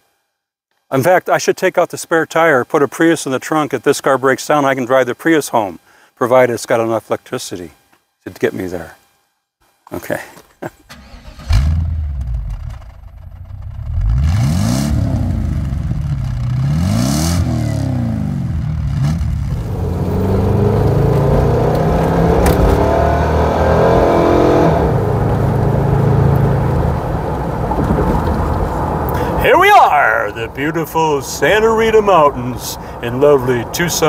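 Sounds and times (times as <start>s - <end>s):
car accelerating with road noise: 10.9s - 34.0s
car engine revving: 10.9s - 34.0s
exhaust burst: 10.9s - 34.0s.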